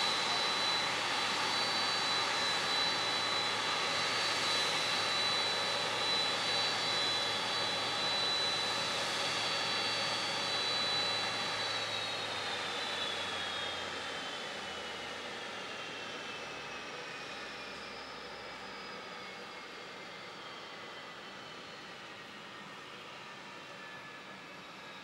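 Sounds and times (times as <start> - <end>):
aircraft auxiliary power unit: 0.0 - 17.4.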